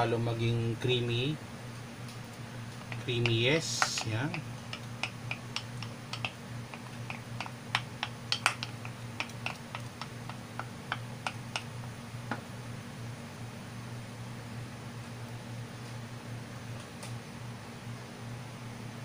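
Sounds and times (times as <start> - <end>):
steady low hum: 0.0 - 19.0
wooden spoon clicking on pot: 2.8 - 11.7.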